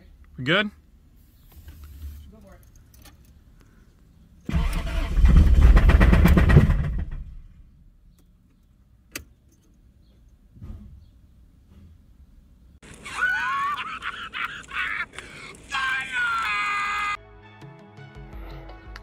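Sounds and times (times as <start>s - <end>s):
car engine cranking and running roughly: 4.5s - 7.4s.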